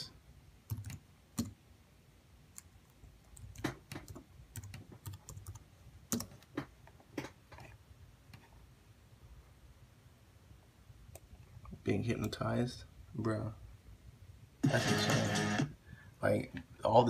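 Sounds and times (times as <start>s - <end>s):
typing on computer keyboard: 0.7s - 1.6s, 3.3s - 7.3s.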